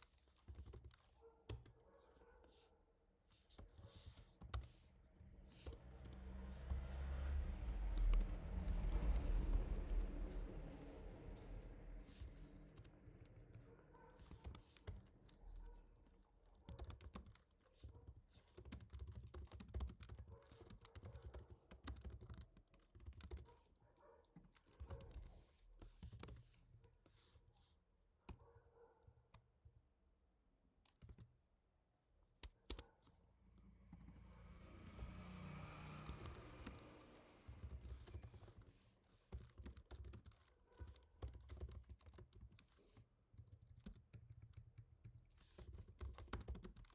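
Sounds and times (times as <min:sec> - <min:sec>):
typing on computer keyboard: 0:00.0 - 0:01.8, 0:07.7 - 0:10.8, 0:12.0 - 0:23.8, 0:24.4 - 0:26.6, 0:30.8 - 0:31.4, 0:32.4 - 0:33.0, 0:35.8 - 0:46.9.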